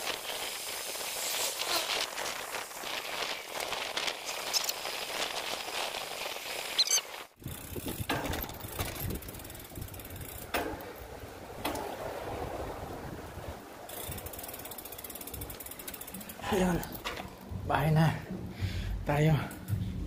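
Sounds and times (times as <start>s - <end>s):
wind on microphone: 0.0s - 14.4s, 17.0s - 19.0s, 19.6s - 20.0s
tyres rolling on pavement: 0.0s - 17.7s.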